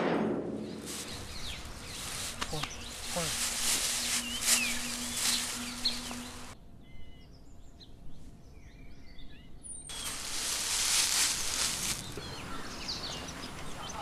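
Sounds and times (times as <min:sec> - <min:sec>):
bird chirps: 0:00.6 - 0:07.9
steady hiss: 0:00.8 - 0:06.6, 0:09.9 - 0:12.2.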